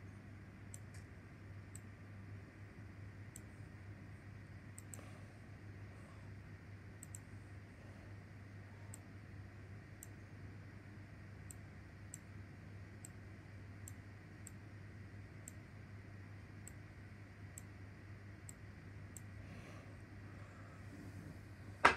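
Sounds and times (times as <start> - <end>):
steady low hum: 0.0 - 21.9
computer mouse clicks: 0.7 - 1.1, 3.3 - 3.5, 4.7 - 5.1, 7.0 - 7.3, 10.0 - 10.2, 11.4 - 12.3, 13.8 - 14.6, 18.4 - 19.3.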